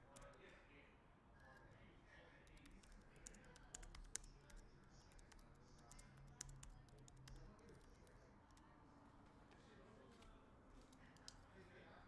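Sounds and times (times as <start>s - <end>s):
typing on computer keyboard: 2.5s - 8.6s.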